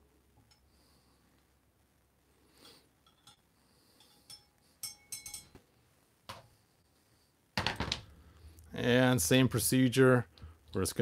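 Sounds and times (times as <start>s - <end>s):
glass clinking: 3.0s - 3.4s, 4.0s - 5.6s.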